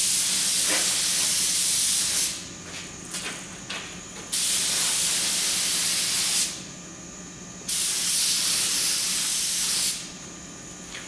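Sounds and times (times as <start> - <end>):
paint spray gun hissing: 7.7 - 10.0.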